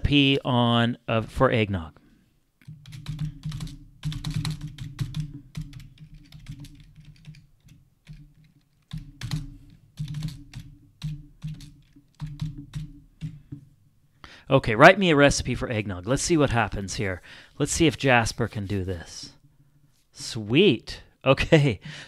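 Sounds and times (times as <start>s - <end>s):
computer keyboard typing: 2.6s - 13.4s.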